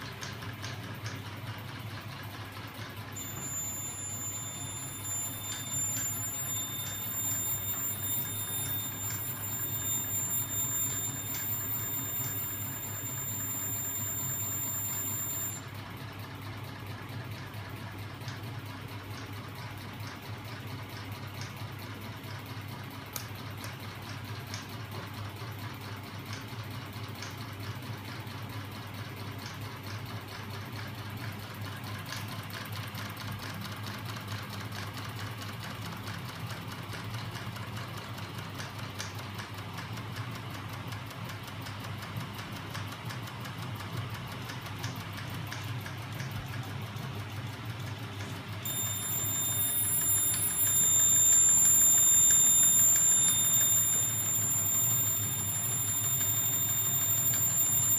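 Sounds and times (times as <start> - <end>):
high-pitched electronic beep: 3.2 - 15.6, 48.6 - 57.9
small electric motors humming: 3.2 - 15.6, 48.6 - 57.9.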